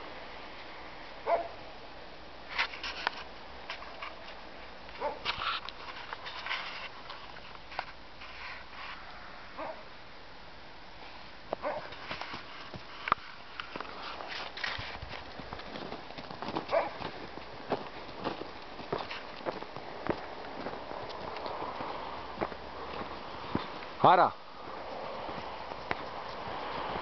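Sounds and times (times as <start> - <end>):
footsteps crunching in snow: 11.6 - 27.0.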